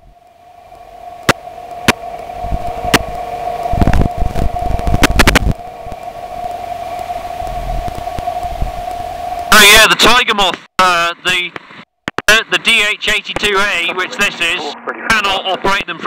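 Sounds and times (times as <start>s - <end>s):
steady intercom hum: 0.0s - 16.0s
low bumps: 0.8s - 9.7s
sharp clicks: 11.3s - 12.4s.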